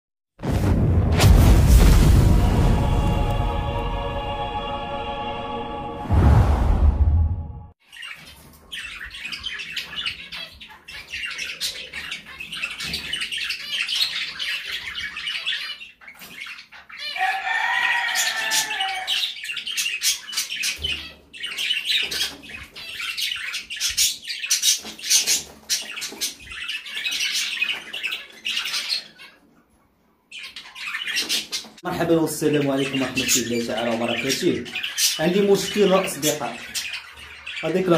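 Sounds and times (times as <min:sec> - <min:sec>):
budgerigars chattering: 0:07.9 - 0:29.4, 0:30.3 - 0:37.9.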